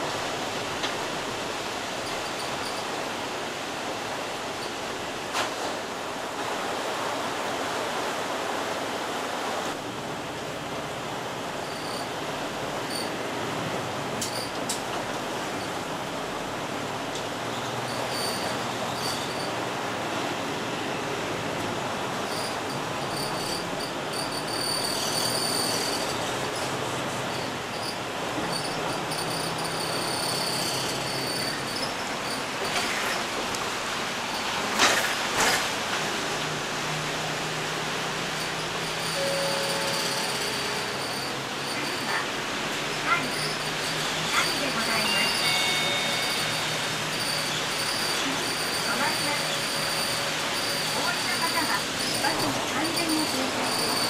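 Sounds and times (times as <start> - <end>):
heavy rain on a bus: 0.0 - 54.0
thin high-pitched squeal: 38.4 - 42.3, 43.1 - 54.0.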